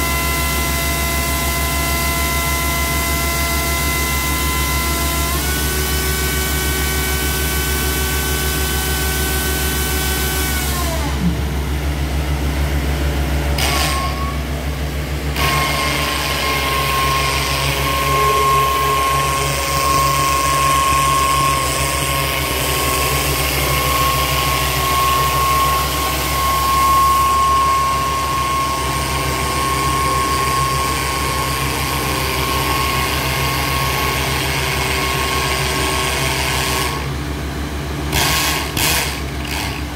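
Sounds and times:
steady whine: 0.0 - 36.1
drilling rig engines humming: 0.0 - 39.9
high whines: 10.4 - 33.7.

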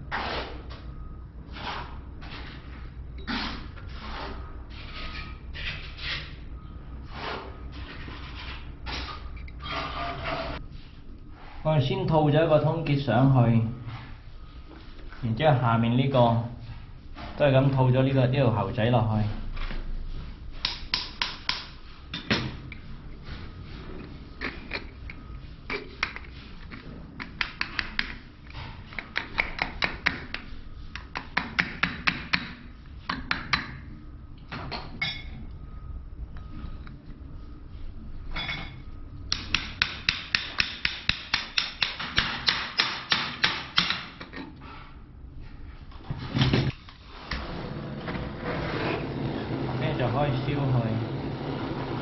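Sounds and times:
hammer tapping copper pipe: 20.6 - 22.3, 29.0 - 33.8, 39.3 - 44.1.

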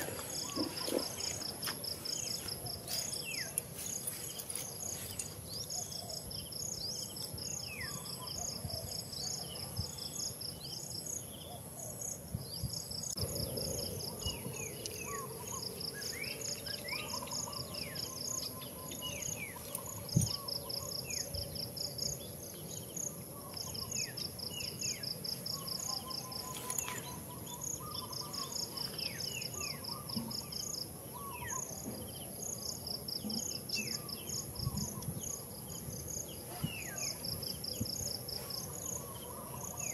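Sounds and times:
rapid pulsing insect trill: 12.0 - 39.9.

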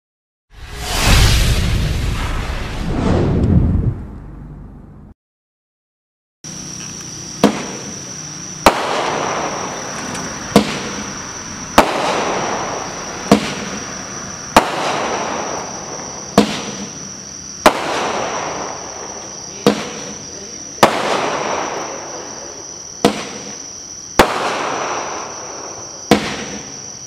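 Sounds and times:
hissing rush after firework bursts: 0.6 - 3.8, 7.4 - 20.2
firework shots: 0.6 - 4.0, 7.4 - 27.0.

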